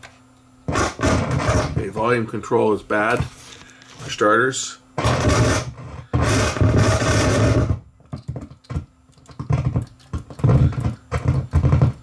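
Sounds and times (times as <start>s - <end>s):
receiver static bursts: 0.7s - 2.0s, 5.0s - 7.8s
crackling and popping: 5.0s - 12.0s.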